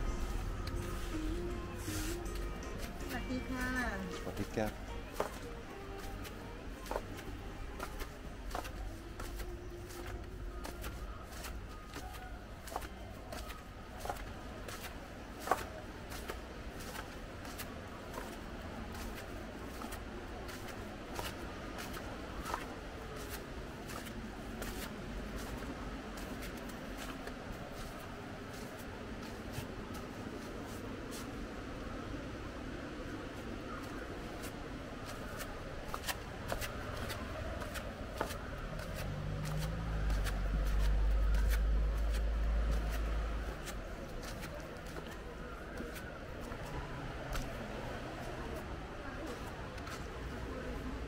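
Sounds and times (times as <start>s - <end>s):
low rumble: 0.0s - 1.8s
footsteps crunching on sand: 0.0s - 31.4s, 33.4s - 48.3s.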